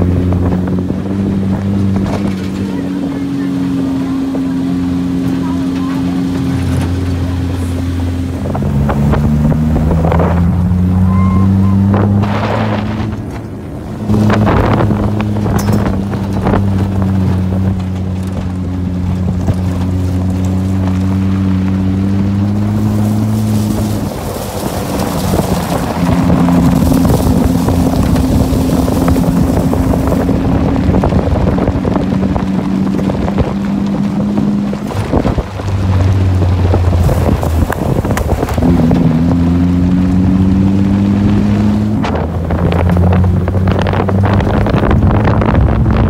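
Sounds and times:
engine running: 0.0s - 46.0s
wind on microphone: 0.0s - 46.0s.

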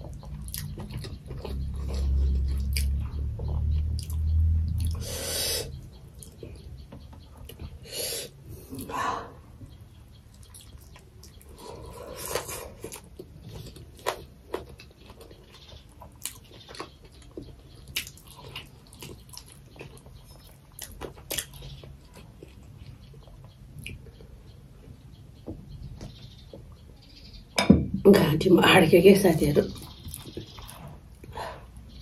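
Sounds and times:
person chewing wet mouth clicks: 4.0s - 5.0s.

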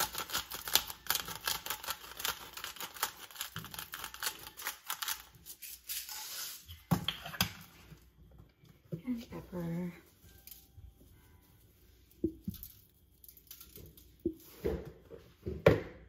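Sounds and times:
salt clicking on foil: 0.0s - 5.4s.

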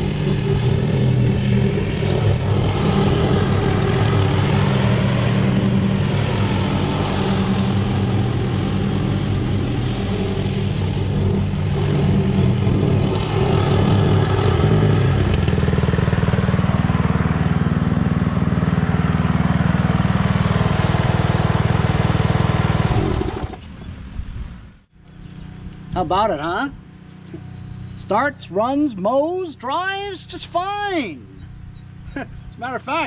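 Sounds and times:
lawn tractor mowing: 0.0s - 24.0s.

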